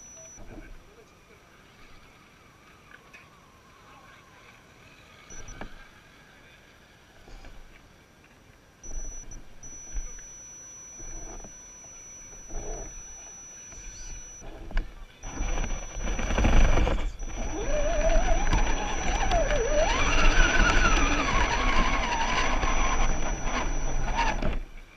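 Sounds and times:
model car motor whining: 4.3 - 6.0, 8.8 - 24.9
tyres on dirt and rock: 8.9 - 24.8.

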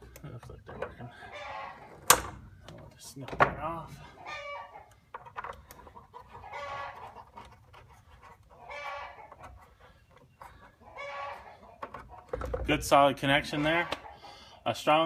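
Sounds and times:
chicken calling: 1.1 - 2.0, 4.0 - 5.1, 5.7 - 12.4.

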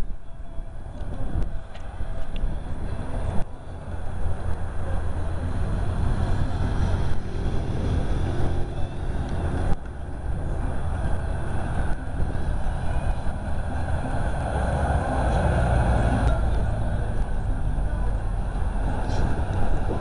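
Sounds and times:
faint distant voices: 0.0 - 9.6
wind rumble on microphone: 0.0 - 20.0.

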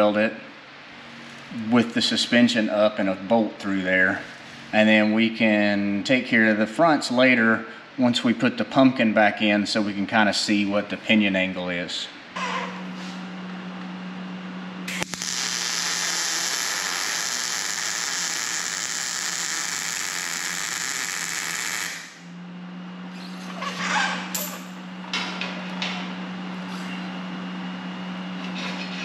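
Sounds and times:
welding arc crackling hiss: 14.9 - 22.2.

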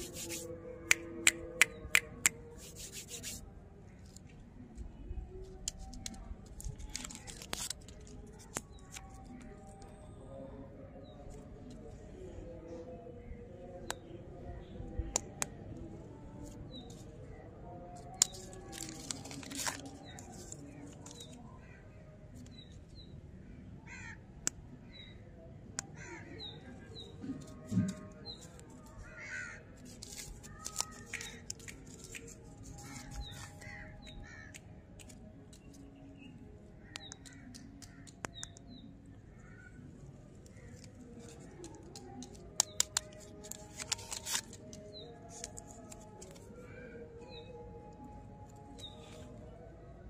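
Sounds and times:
paper wrappers crinkling: 0.0 - 0.4, 5.5 - 9.6, 17.9 - 21.4, 29.8 - 34.4, 40.4 - 46.6.

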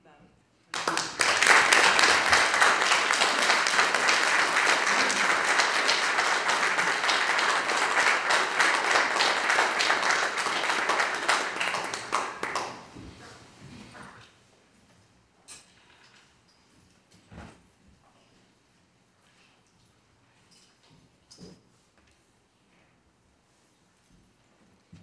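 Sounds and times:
audience applause: 0.7 - 13.1.

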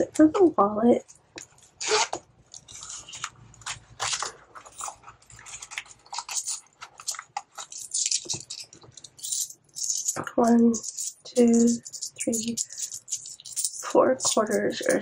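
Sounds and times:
paper bills rustling: 1.7 - 10.2.

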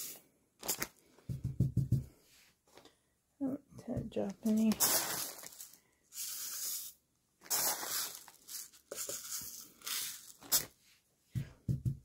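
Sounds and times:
plastic pellets pouring into funnel: 4.6 - 10.7.

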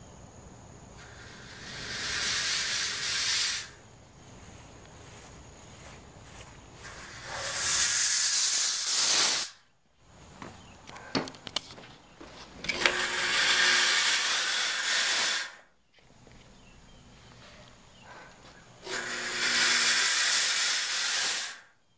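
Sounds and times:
fog machine hissing bursts: 1.0 - 3.9, 6.8 - 9.6, 12.8 - 15.7, 18.8 - 21.7.

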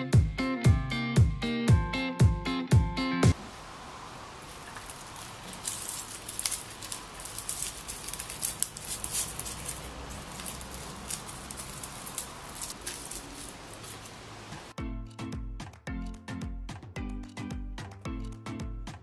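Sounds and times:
faint steady hiss: 3.3 - 14.8
leaves rustling and crinkling: 3.3 - 14.8.

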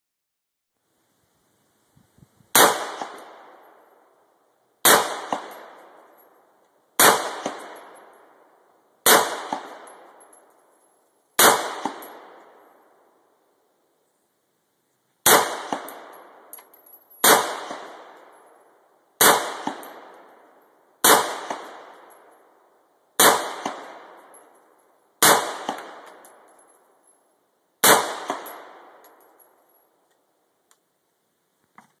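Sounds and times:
rifle shots with echo: 2.5 - 3.9, 4.8 - 6.0, 7.0 - 10.4, 11.4 - 12.6, 15.2 - 16.5, 17.2 - 18.5, 19.2 - 22.3, 23.2 - 24.5, 25.2 - 26.5, 27.8 - 29.3.

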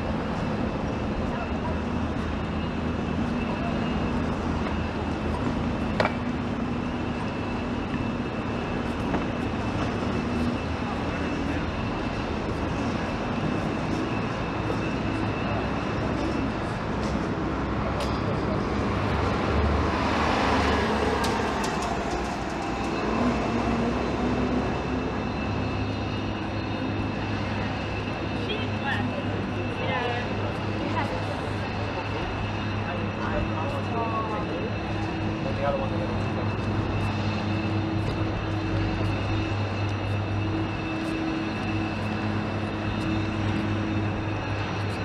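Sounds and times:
city traffic engine hum: 0.0 - 45.0
faint high whine: 20.3 - 45.0.

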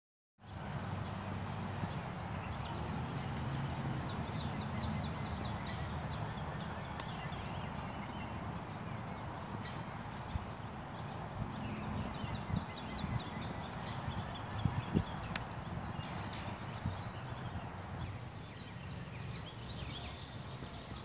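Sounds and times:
footsteps on grass: 5.8 - 13.9.

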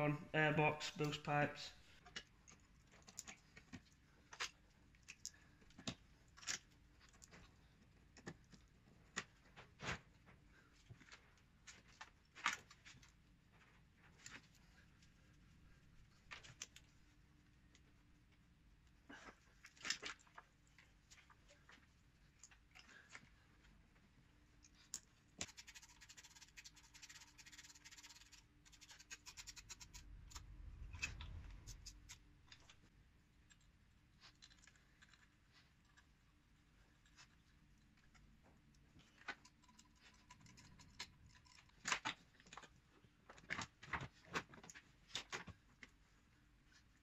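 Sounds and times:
low rumble: 29.9 - 32.9.

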